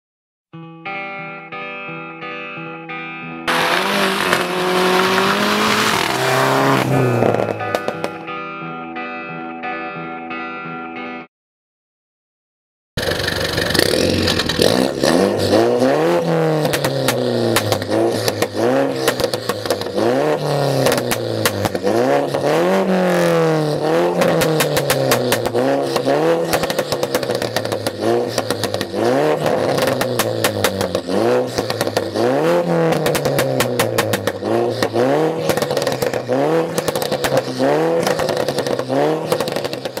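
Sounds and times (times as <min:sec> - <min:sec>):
car engine revving: 0:03.5 - 0:08.3, 0:13.0 - 0:40.0
exhaust pops and crackles: 0:13.0 - 0:40.0.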